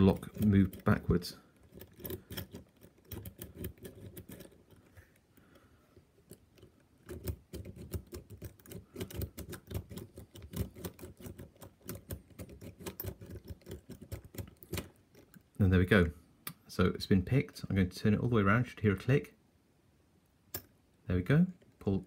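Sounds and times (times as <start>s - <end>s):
lock pick clicking in lock: 1.5s - 5.3s.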